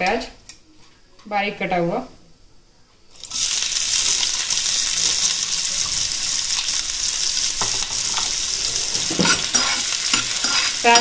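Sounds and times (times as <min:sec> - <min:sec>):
onion sizzling in hot oil: 0:03.1 - 0:11.0.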